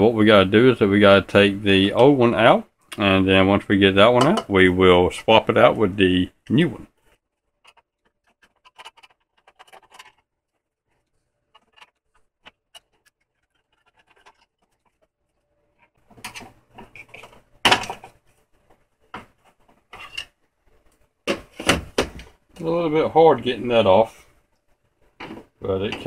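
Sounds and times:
light clicks and scrapes: 7.0 - 21.6
heatsink clunking and scraping: 15.9 - 20.4, 21.2 - 22.4, 25.2 - 26.0.

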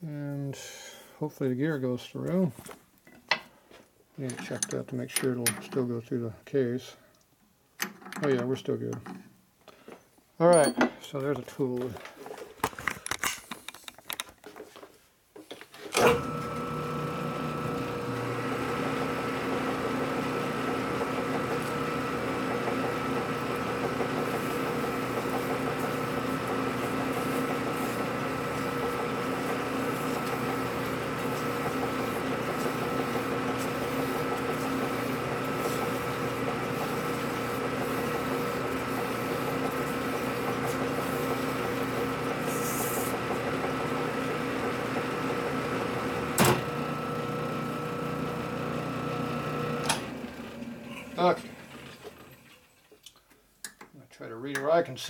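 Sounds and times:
metal lathe humming and whining: 16.0 - 52.1.

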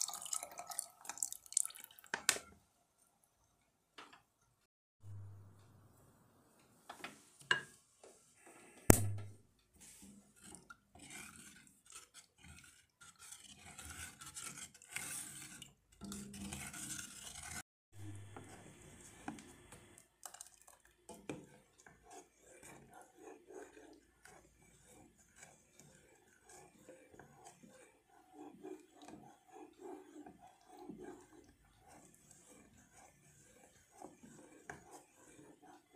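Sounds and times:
sharp knock: 8.9 - 9.4
spoon scraping metal pot: 9.8 - 19.4, 21.1 - 35.9.

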